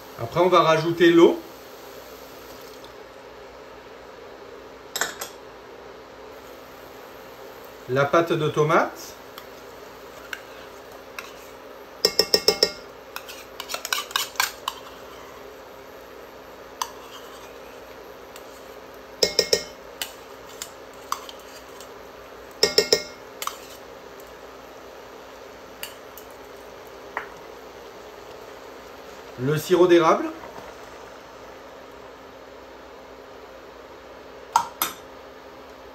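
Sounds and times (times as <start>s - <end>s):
metal utensil scraping a cup: 13.2s - 15.2s, 16.8s - 17.6s, 23.4s - 23.8s.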